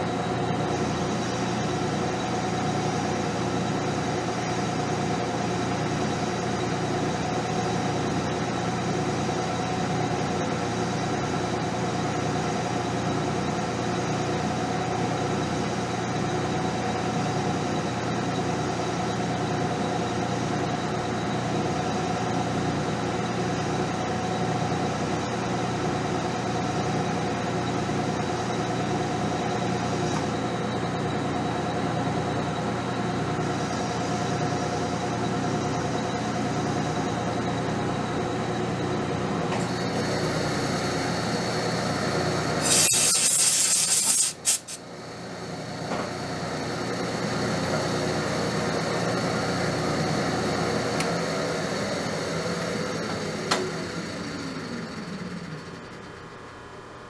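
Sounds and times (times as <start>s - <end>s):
metal lathe humming and whining: 0.0s - 57.0s.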